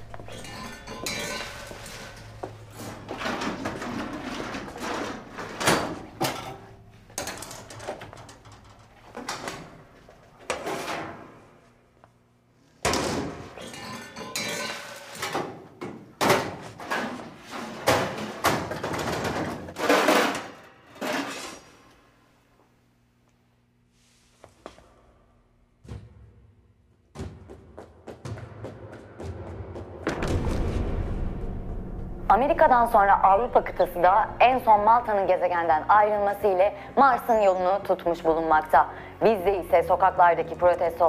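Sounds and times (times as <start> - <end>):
metal pans and utensils knocking: 0.3 - 2.3, 13.6 - 15.5
loud bang: 30.0 - 32.8.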